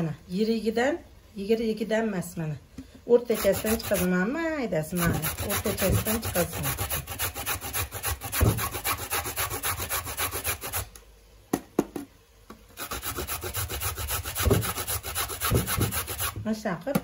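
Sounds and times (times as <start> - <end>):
carrot grated on metal grater: 3.2 - 4.1, 4.9 - 10.9, 12.8 - 16.4.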